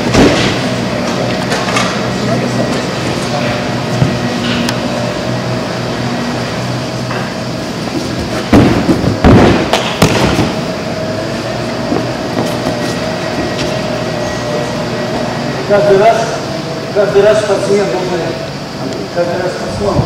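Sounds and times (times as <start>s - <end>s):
mechanical hum: 0.0s - 20.0s
heavy thuds on mats: 8.0s - 10.7s.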